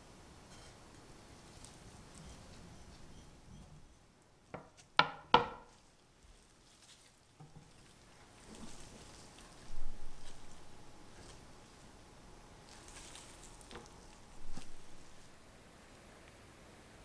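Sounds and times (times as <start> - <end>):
faint handling sounds: 0.5 - 3.1, 5.6 - 15.4.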